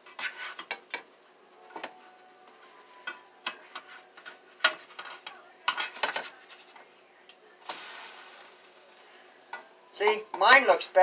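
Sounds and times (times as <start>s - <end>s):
spatulas scraping frying pans: 0.0s - 1.1s, 2.9s - 6.9s.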